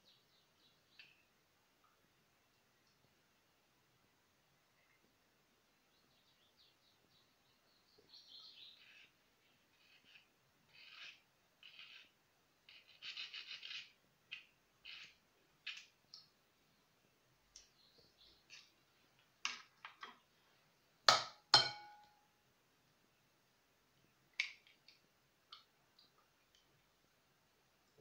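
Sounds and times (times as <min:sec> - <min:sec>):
eggshells clicking and scraping: 0:08.6 - 0:12.1, 0:12.7 - 0:16.3.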